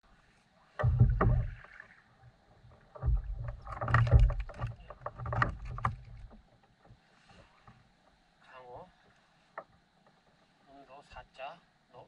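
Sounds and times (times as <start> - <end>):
thumps and knocks against a kayak: 0.8 - 1.9, 2.5 - 8.2.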